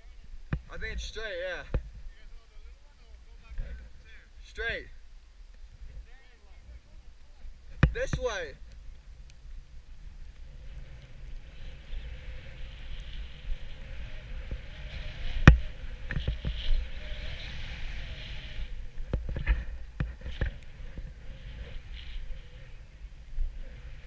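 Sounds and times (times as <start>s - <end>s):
wind on microphone: 5.6s - 24.0s
snowboard scraping over snow: 10.4s - 24.0s.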